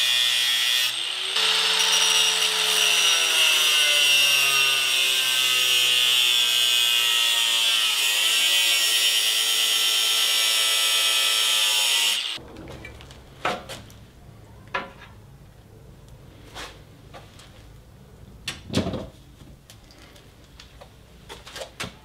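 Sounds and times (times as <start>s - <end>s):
angle grinder cutting steel: 0.0s - 12.4s.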